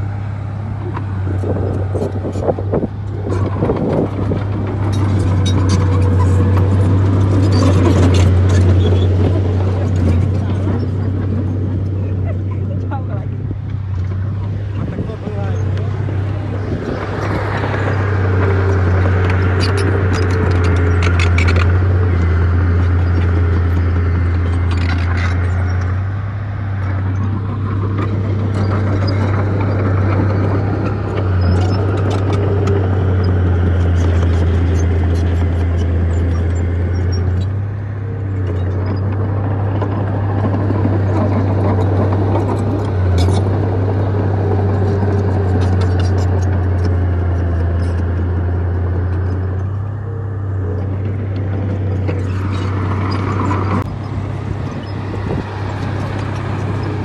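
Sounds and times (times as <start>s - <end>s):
heavy diesel engine under load: 0.0s - 57.0s
clicks and rattles: 13.6s - 26.0s, 26.8s - 37.6s, 38.3s - 49.9s.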